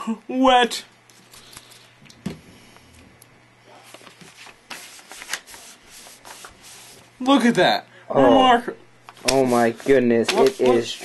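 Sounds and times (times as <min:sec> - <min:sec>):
book rubbing and rustling: 0:03.8 - 0:07.2, 0:09.1 - 0:11.0.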